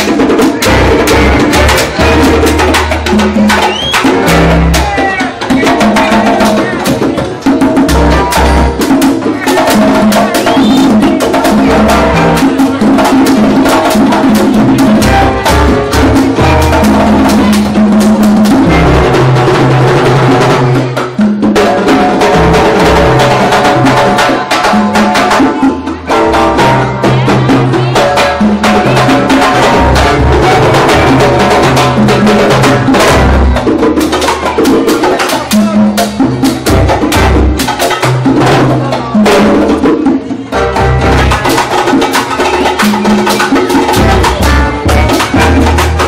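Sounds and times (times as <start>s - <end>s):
congas and timbales: 0.0s - 46.0s
electric upright bass: 0.6s - 3.3s, 11.7s - 12.6s, 15.0s - 17.8s, 29.5s - 31.3s, 40.6s - 41.4s, 44.0s - 46.0s.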